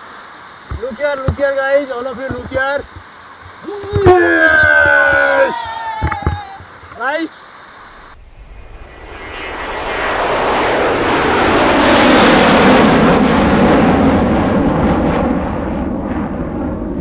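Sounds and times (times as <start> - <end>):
whitewater rushing: 0.0 - 7.3.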